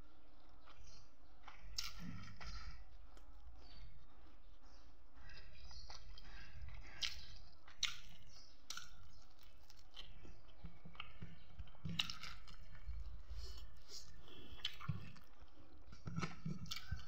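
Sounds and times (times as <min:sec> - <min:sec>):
chewing with wet mouth smacks: 0:00.2 - 0:17.0.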